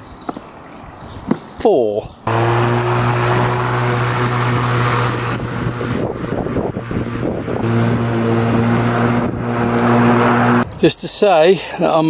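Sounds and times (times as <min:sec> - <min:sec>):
electric lawn mower humming: 0:02.3 - 0:10.6.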